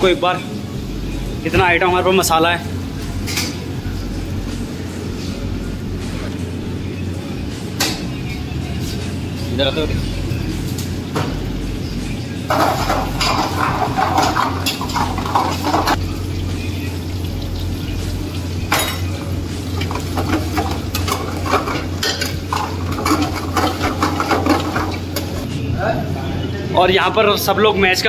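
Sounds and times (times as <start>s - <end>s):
steady low hum: 0.0s - 26.8s
food sizzling: 10.2s - 25.5s
ladle scraping iron pan: 12.5s - 16.0s, 19.8s - 25.4s.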